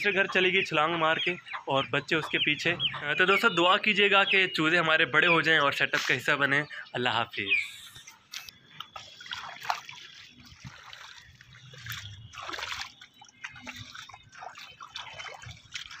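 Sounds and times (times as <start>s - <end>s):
bare feet splashing in water: 8.3s - 16.0s.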